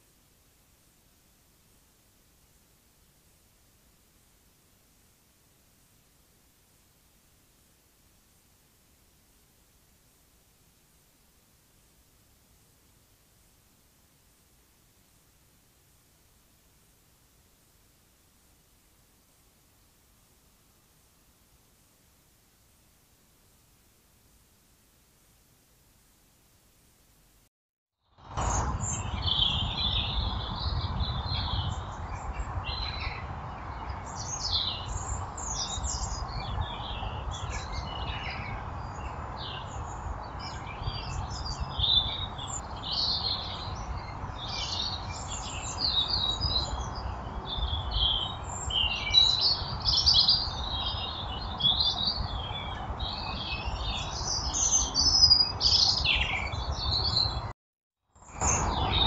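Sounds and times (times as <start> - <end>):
small birds chirping: 28.4 - 57.5.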